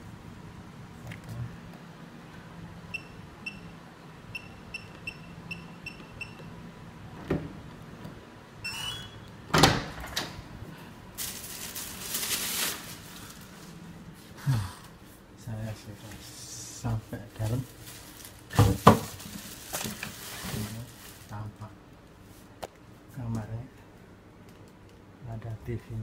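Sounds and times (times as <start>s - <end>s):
keypad lock beeping: 4.3s - 6.5s
door pushed open rushing: 9.5s - 10.4s.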